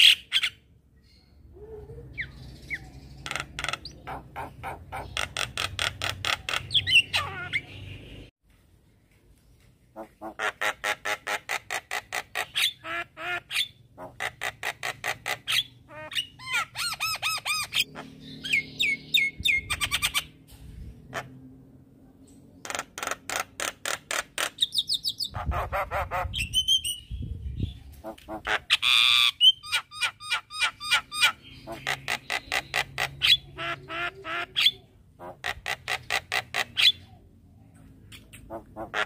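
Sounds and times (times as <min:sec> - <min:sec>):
squawky bird calls: 0:01.5 - 0:07.9, 0:27.9 - 0:37.2.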